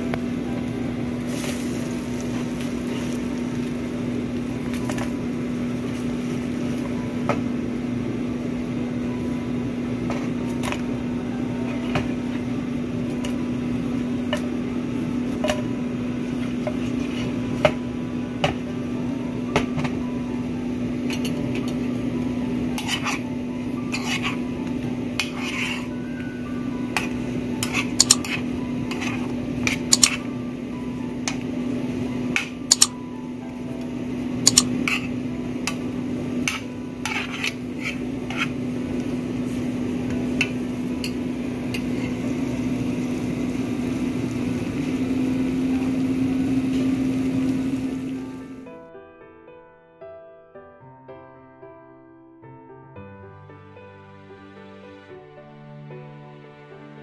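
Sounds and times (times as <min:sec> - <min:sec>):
metal spoon scraping pan: 0:22.8 - 0:23.3, 0:23.9 - 0:24.4, 0:25.2 - 0:25.9, 0:27.0 - 0:30.2, 0:32.7 - 0:32.9, 0:34.5 - 0:35.2, 0:36.4 - 0:38.6
sharp clicks: 0:32.7 - 0:32.9, 0:34.5 - 0:34.7.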